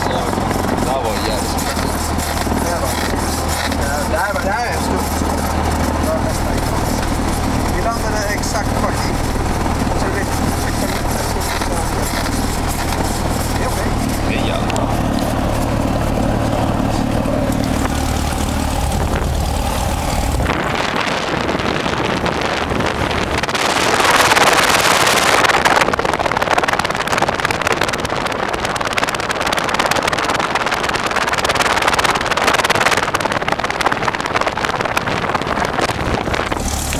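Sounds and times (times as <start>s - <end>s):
piston engine humming: 0.0s - 26.4s
wind buffeting microphone: 0.0s - 36.9s.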